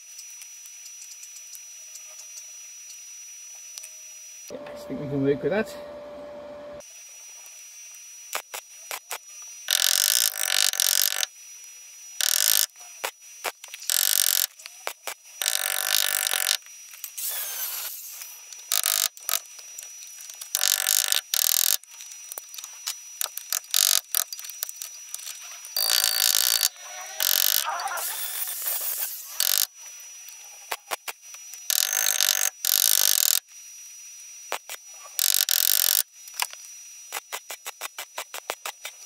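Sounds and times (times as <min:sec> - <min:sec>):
welder crackling: 0:08.3 - 0:11.3, 0:12.2 - 0:29.7.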